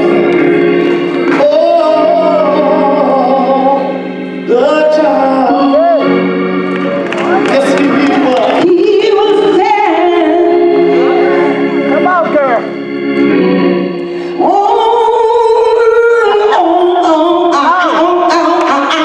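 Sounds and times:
organ holding gospel chords: 0.0s - 19.0s
man singing: 1.2s - 6.2s, 7.5s - 9.8s.

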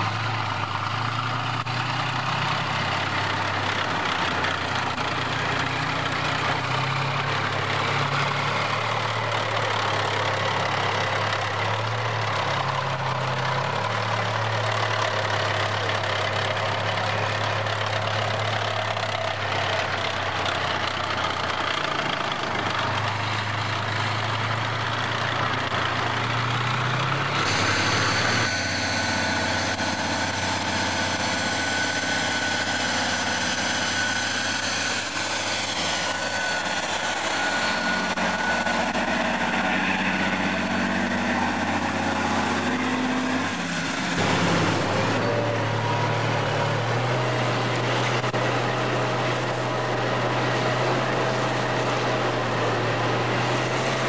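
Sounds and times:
heavy diesel engines running: 0.0s - 54.0s
high whine: 27.3s - 50.0s.

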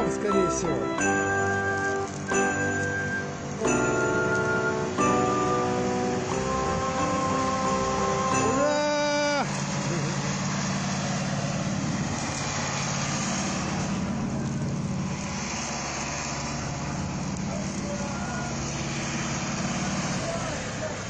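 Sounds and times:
short musical tone: 0.0s - 9.3s
traffic: 0.0s - 21.0s
vehicle engine humming: 0.0s - 21.0s.

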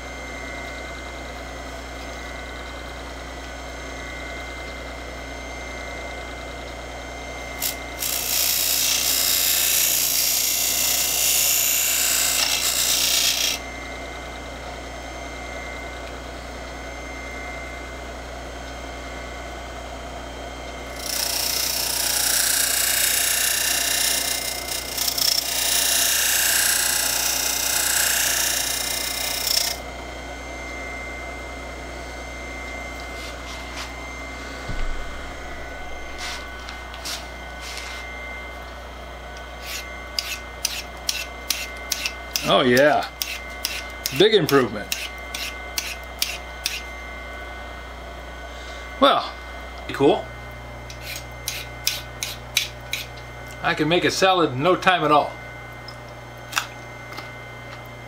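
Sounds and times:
buffing machine humming: 24.4s - 42.5s
steel blade rasping on wheel: 39.6s - 42.6s, 43.2s - 46.9s, 50.9s - 53.1s.

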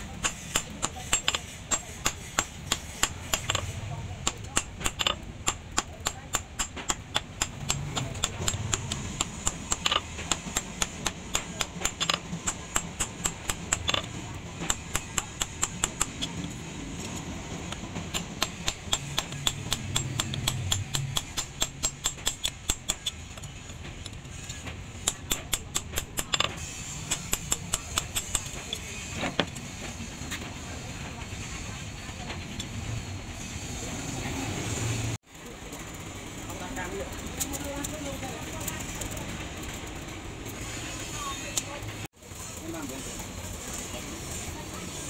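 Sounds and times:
hammer striking steel on anvil: 0.0s - 16.6s, 17.5s - 29.6s.

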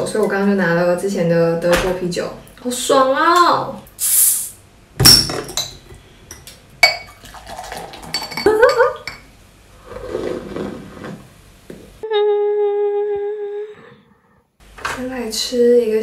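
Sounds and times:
glass clinks: 5.0s - 7.2s
beer glugging into a glass: 6.9s - 9.0s
person humming: 12.0s - 14.4s.

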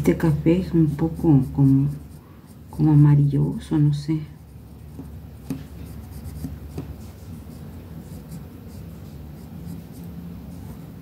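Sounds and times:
pencil scratching on paper: 0.0s - 11.0s
light taps: 4.9s - 5.8s.

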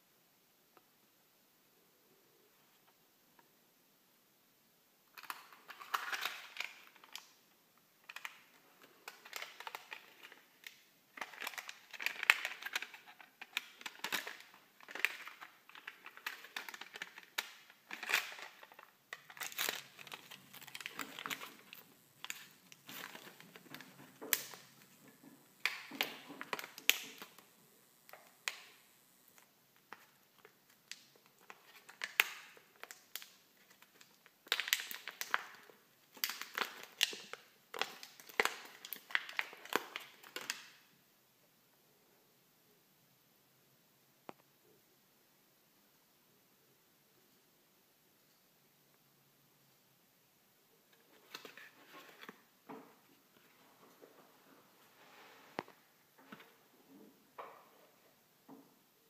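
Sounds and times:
packaging crinkling and rustling: 5.1s - 40.9s, 50.9s - 54.6s.

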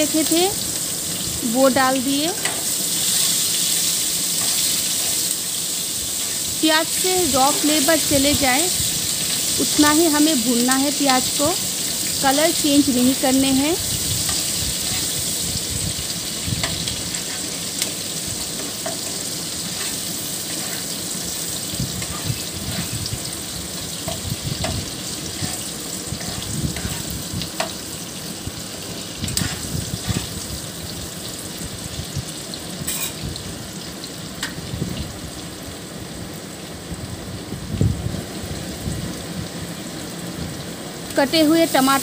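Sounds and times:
onions sizzling in hot oil: 0.0s - 42.0s
spatula scraping a wok: 2.3s - 9.9s, 13.9s - 27.8s, 29.3s - 30.5s, 32.8s - 33.2s.

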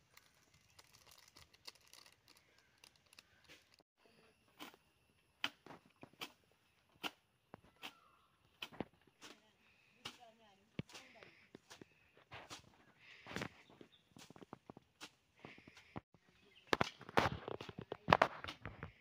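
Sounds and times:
fingers crumbling powder: 0.0s - 3.8s.

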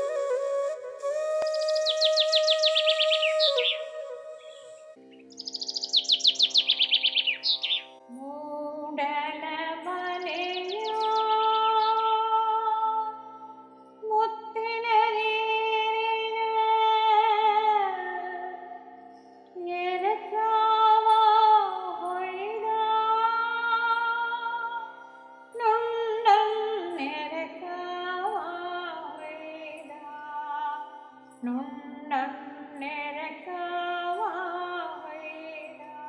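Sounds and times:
woman singing slow song: 8.1s - 36.0s.

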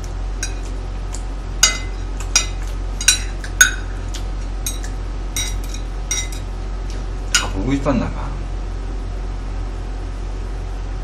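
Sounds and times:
low steady hum: 0.0s - 11.0s
metal utensils clinking on plate: 1.6s - 3.9s, 4.6s - 6.5s.

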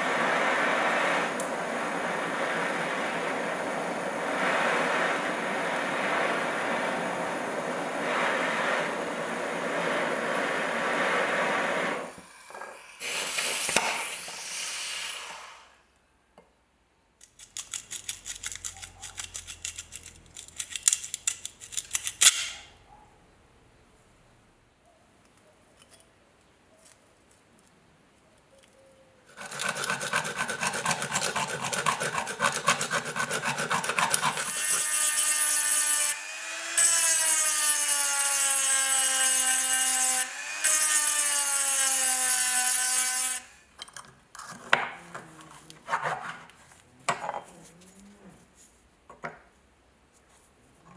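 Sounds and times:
fast scraping strokes: 29.3s - 35.2s
rotary tool grinding steel: 29.3s - 43.5s.

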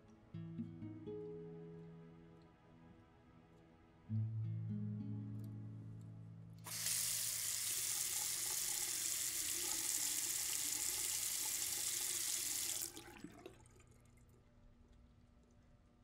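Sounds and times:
faucet water running into sink: 6.7s - 14.3s.

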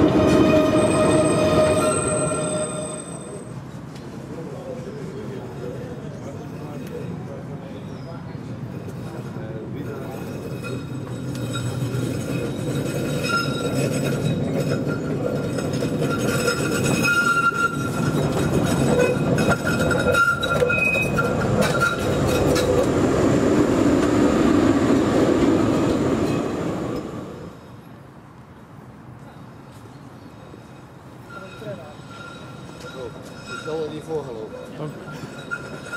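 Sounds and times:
high wheel squeal: 0.0s - 3.6s, 10.2s - 22.8s, 30.3s - 35.9s
tram running on rails: 0.0s - 35.9s.

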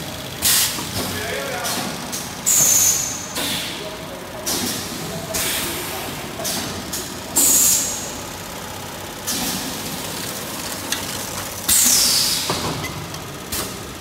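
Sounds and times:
packaging machine running: 4.3s - 14.0s.

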